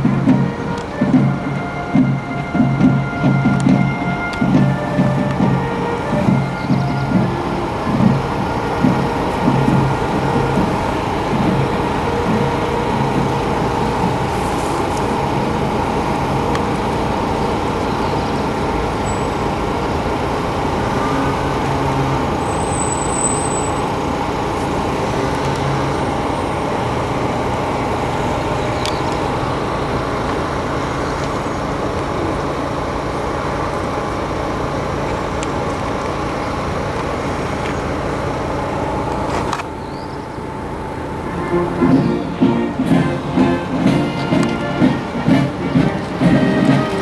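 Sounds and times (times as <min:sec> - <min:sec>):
road traffic hum: 0:00.0 - 0:47.0
vehicle engine running: 0:00.0 - 0:47.0.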